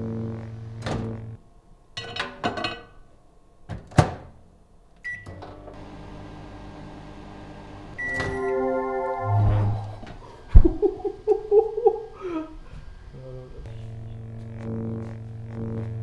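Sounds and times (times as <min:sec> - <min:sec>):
microwave oven hum: 0:05.0 - 0:08.4, 0:10.0 - 0:16.0
button beep: 0:08.0 - 0:09.8
chord of steady tones: 0:08.0 - 0:10.5.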